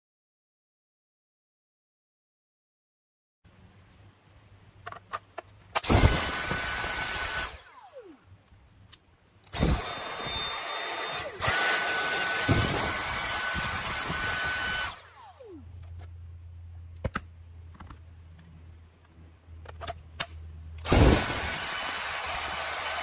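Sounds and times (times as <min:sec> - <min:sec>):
cordless vacuum motor whistling: 0:09.5 - 0:15.6, 0:20.8 - 0:23.0.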